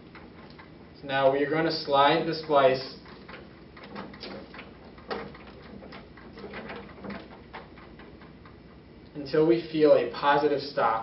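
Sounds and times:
rubber rubbing on cable: 2.1 - 8.9.

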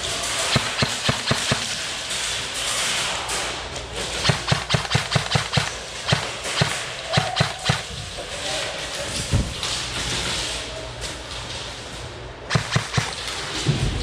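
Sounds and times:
steady background noise: 0.0 - 14.0
airsoft gun shots: 0.4 - 1.8, 4.2 - 7.9, 12.5 - 13.3.

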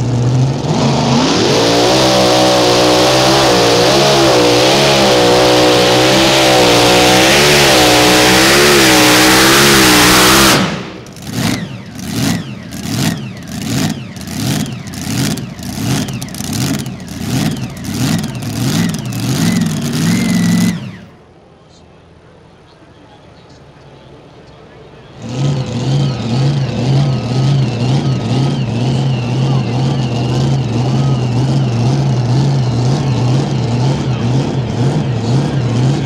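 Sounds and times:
tractor engine revving: 0.0 - 21.2, 25.0 - 36.0.

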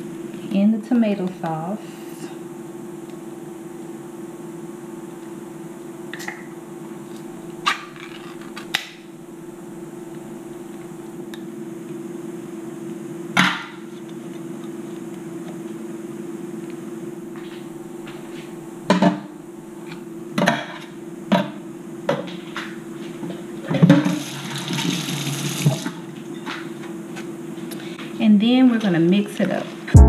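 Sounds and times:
steady low hum: 0.0 - 24.0, 25.8 - 30.0
kitchen tap running: 24.0 - 25.9.

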